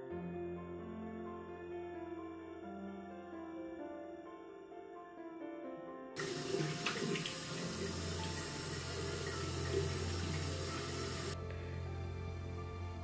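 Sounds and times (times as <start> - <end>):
soft piano music: 0.0 - 13.0
tap running into sink: 6.2 - 11.4
water splashes: 6.2 - 11.4.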